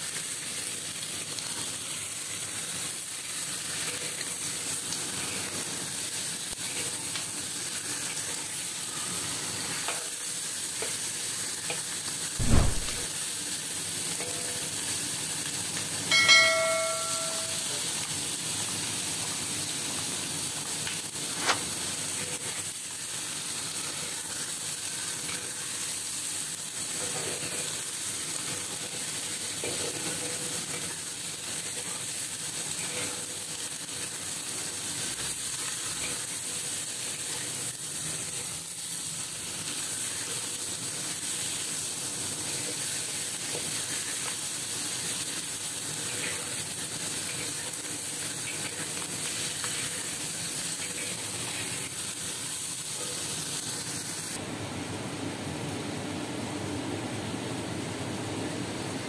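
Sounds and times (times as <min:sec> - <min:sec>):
chicken sizzling in oil: 0:00.0 - 0:56.5
dull thump: 0:12.4 - 0:13.0
sharp click: 0:12.4 - 0:13.0
metallic ring: 0:16.1 - 0:17.7.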